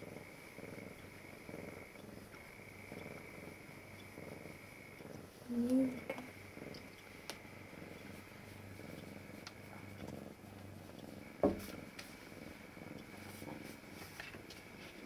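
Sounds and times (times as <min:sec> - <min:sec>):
cat purring softly: 0:00.0 - 0:15.0.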